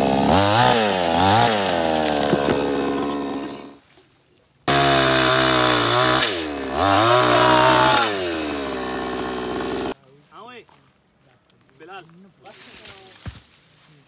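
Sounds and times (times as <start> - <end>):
chainsaw cutting branches: 0.0 - 3.8, 4.7 - 10.0.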